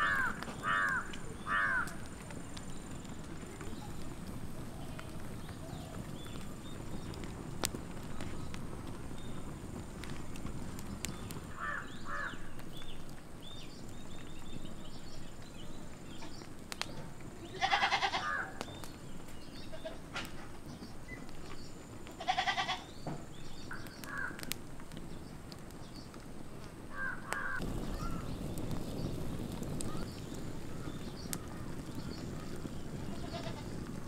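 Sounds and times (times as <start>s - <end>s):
small birds chirping: 0.0s - 34.0s
wood fire crackling: 0.0s - 34.0s
goat bleating: 17.5s - 18.4s, 22.2s - 22.8s.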